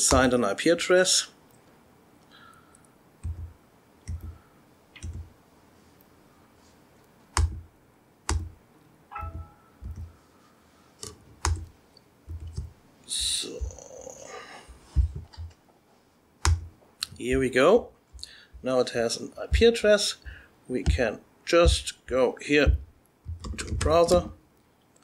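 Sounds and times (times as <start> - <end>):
laptop keyboard key taps: 8.3 - 8.5.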